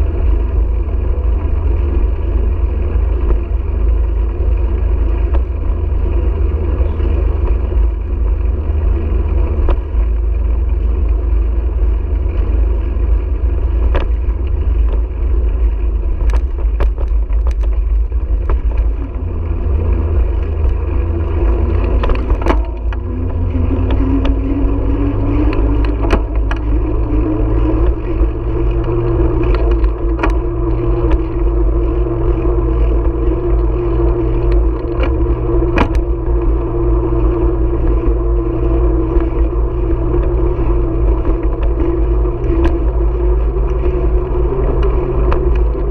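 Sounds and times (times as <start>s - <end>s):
hum rising in pitch: 0.0s - 45.9s
tyre and road noise: 0.0s - 45.9s
wind buffeting microphone: 0.0s - 45.9s
rattling clicks from bumps: 16.0s - 32.2s.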